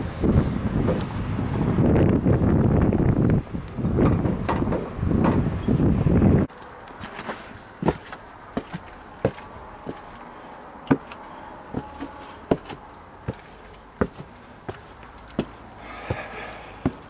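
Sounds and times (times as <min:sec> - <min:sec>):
footsteps on stone steps: 0:00.8 - 0:01.2, 0:06.5 - 0:17.0.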